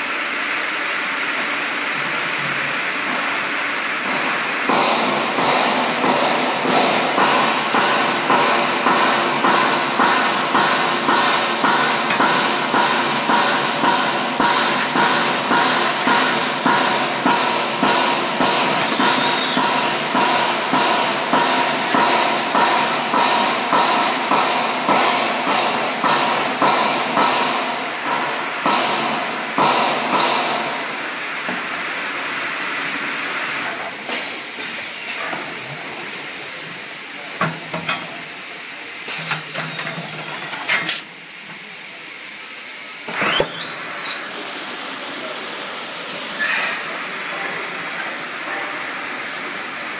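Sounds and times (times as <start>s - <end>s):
mechanical hum: 0.0s - 49.9s
machine knocking: 4.0s - 30.8s.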